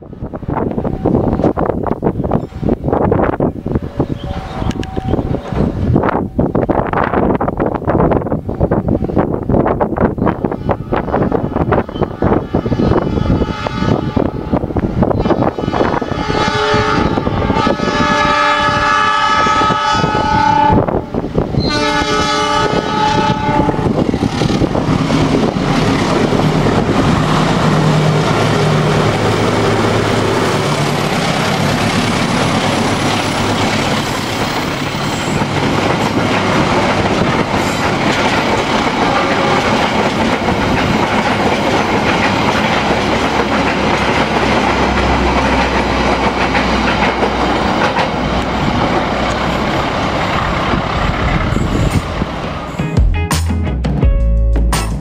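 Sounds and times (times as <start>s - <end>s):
locomotive engine drone: 0.0s - 6.5s, 22.6s - 52.9s
locomotive multi-note horn: 10.4s - 34.2s, 38.8s - 40.1s
train wheels clacking over rail joints: 24.0s - 52.4s.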